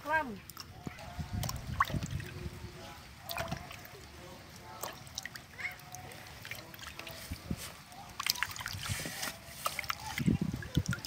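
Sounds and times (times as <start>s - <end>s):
water splashes and drips: 0.0s - 11.0s
hands sloshing vegetables in water: 0.4s - 11.0s.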